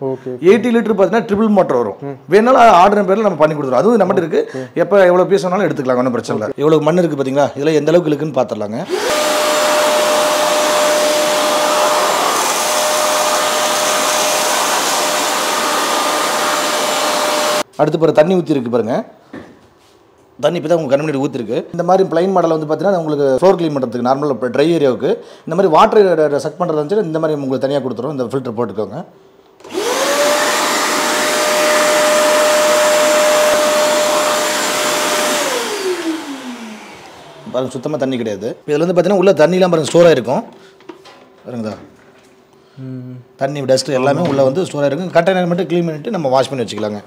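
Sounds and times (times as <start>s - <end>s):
vacuum cleaner motor whining: 8.8s - 17.6s, 29.6s - 38.0s.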